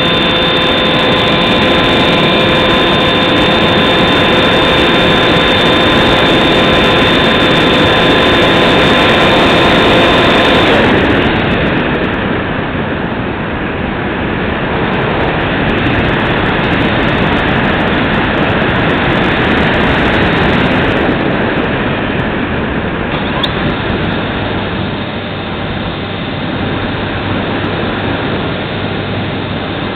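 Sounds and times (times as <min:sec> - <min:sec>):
electric motor whining: 0:00.0 - 0:12.0, 0:23.1 - 0:29.9
wind rushing: 0:00.0 - 0:29.9.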